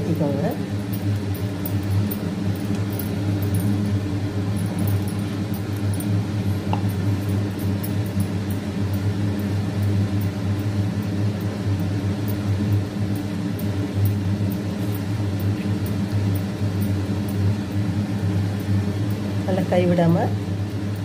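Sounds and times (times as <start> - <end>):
low machine hum: 0.0 - 21.0.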